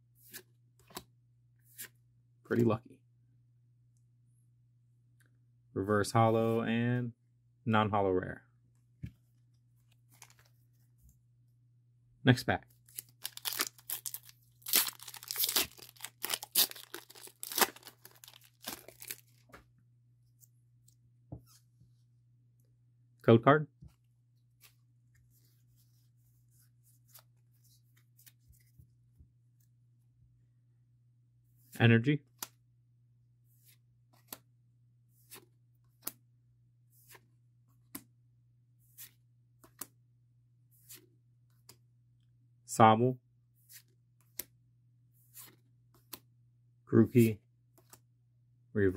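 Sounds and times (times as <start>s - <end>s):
foil wrapper tearing and crinkling: 13.0s - 19.4s.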